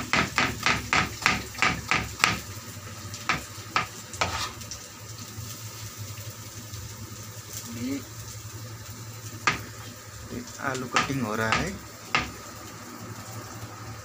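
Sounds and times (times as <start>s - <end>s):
onions frying in oil: 0.0s - 14.0s
metal spatula scraping a wok: 4.2s - 4.6s.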